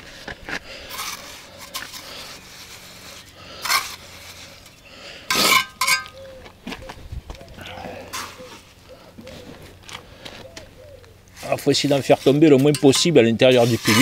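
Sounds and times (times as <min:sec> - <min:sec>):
trowel scraping mortar on blocks: 0:00.8 - 0:06.1, 0:11.3 - 0:14.0.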